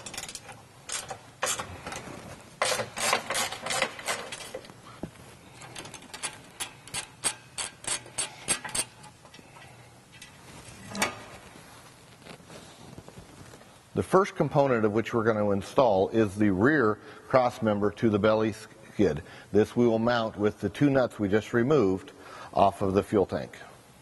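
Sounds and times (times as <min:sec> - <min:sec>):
socket ratchet clicking: 0:06.0 - 0:09.0.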